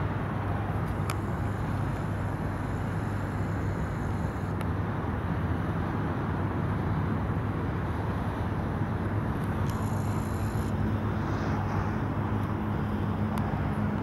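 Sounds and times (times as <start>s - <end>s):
jet engines rumbling: 0.0s - 5.2s
faint high whine: 0.0s - 5.6s, 8.8s - 14.0s.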